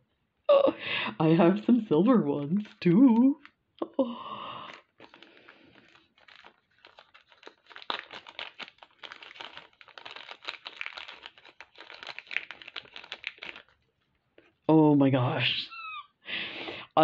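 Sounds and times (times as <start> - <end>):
plastic bag crinkling: 4.2 - 14.6.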